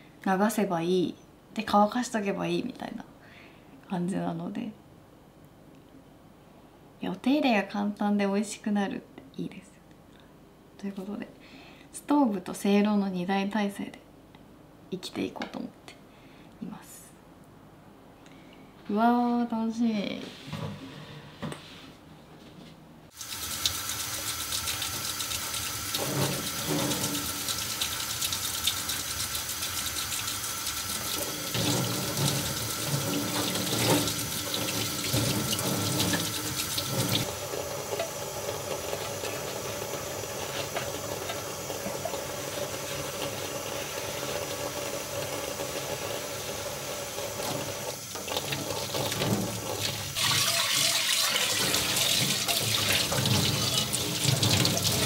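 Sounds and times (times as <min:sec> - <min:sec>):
metal pot being rinsed: 0:23.2 - 0:55.0
tap water running into sink: 0:23.2 - 0:55.0.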